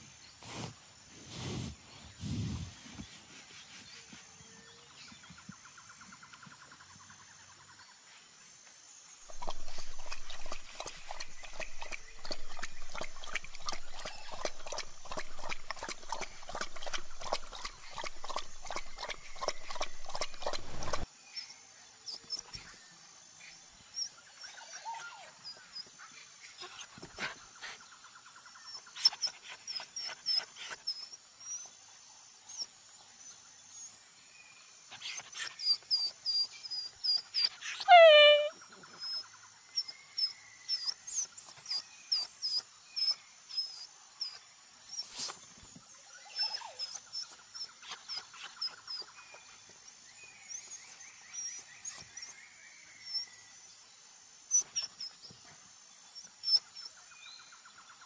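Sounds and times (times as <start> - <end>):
puppy eating from a bowl: 9.3 - 21.1
high chirps: 37.8 - 38.5.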